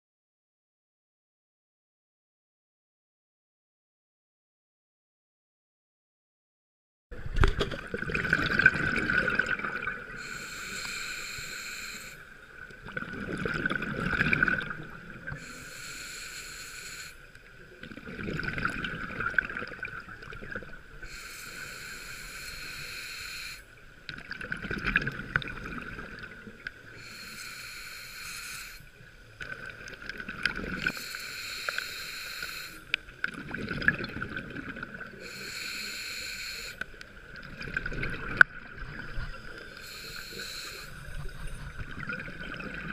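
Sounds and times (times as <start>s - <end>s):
bubbling exhaled air: 7.4s - 12.2s
hissing regulator inhalation: 10.2s - 12.4s, 15.4s - 17.3s, 21.0s - 23.8s, 26.9s - 28.9s, 30.9s - 33.0s, 35.1s - 36.9s, 39.6s - 41.3s.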